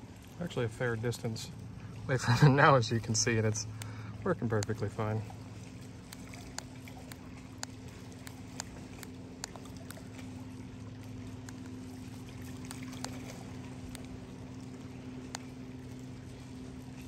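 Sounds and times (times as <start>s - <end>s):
low motor hum: 0.0s - 17.0s
light clicks and ticks: 3.3s - 5.2s, 6.0s - 10.3s, 12.4s - 15.6s.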